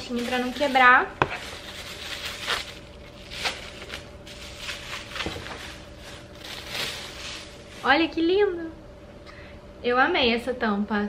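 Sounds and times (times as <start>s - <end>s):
plastic bag crinkling and rustling: 0.0s - 8.2s.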